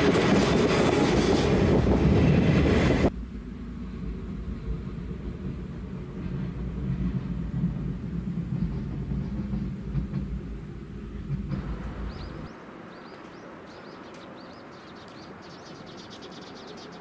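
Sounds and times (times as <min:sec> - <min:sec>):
diesel locomotive rumbling past: 0:00.0 - 0:17.0
birds chirping: 0:11.0 - 0:17.0.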